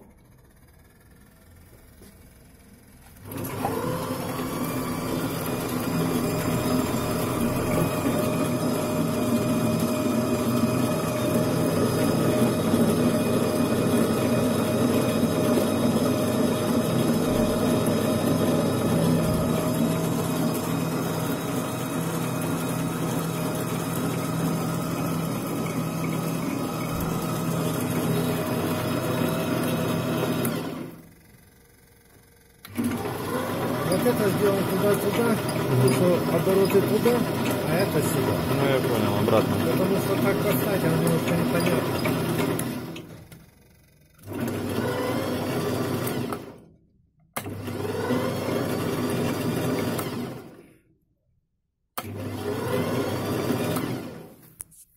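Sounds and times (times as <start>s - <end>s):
lathe motor humming and whining: 0.4s - 31.1s, 32.7s - 43.4s, 52.0s - 54.3s.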